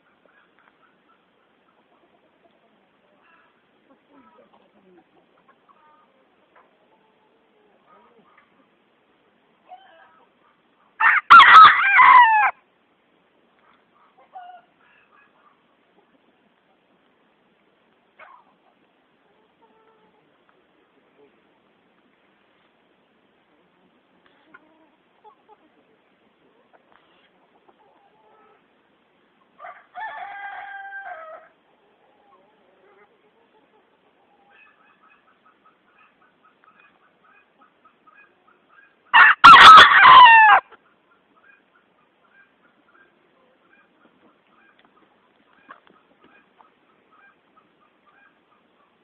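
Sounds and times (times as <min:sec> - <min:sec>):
rooster crowing: 0:11.0 - 0:12.6, 0:39.2 - 0:40.7
faint clucks: 0:40.7 - 0:49.0.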